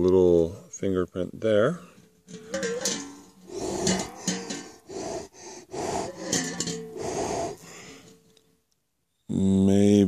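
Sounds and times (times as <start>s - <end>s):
man blowing breathy puffs: 3.4s - 8.3s.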